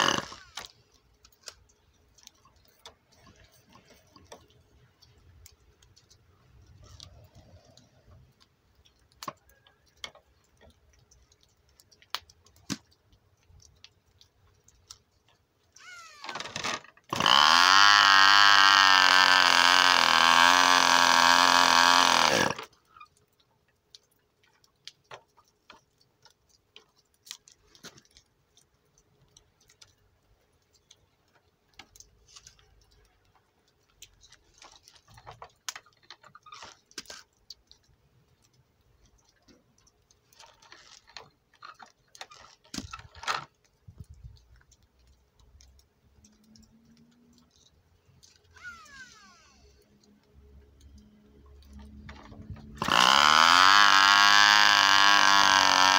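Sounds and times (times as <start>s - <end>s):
electric starter whining: 0.0s - 0.7s, 15.8s - 22.7s, 48.5s - 49.8s, 51.8s - 55.9s
small clicks and handling noises: 0.0s - 19.0s, 20.2s - 55.9s.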